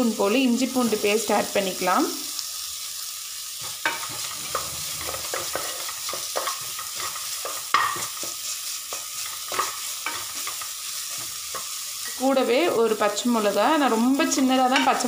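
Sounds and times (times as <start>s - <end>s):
onions sizzling in hot oil: 0.0s - 15.0s
wooden spatula scraping pot: 3.8s - 12.2s.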